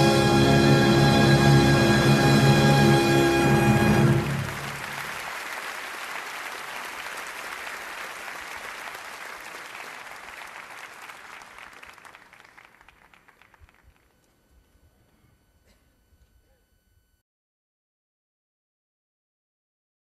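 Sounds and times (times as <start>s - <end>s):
large audience applauding: 3.8s - 14.3s.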